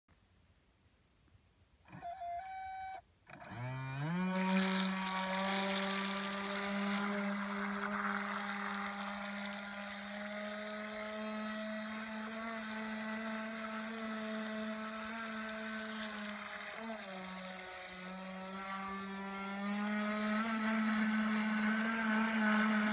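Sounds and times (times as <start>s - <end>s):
electric motor high-pitched whine: 1.9s - 22.9s
water hiss: 4.4s - 18.9s.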